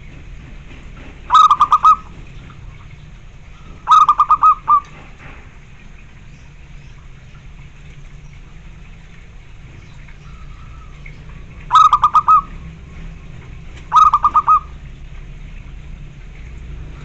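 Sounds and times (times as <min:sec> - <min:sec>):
dove cooing: 0:01.3 - 0:02.1, 0:03.8 - 0:05.0, 0:11.6 - 0:12.6, 0:13.8 - 0:14.9.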